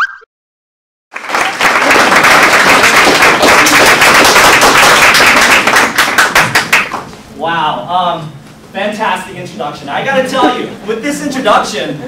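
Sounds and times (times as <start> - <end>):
audience applauding: 1.1 - 7.1.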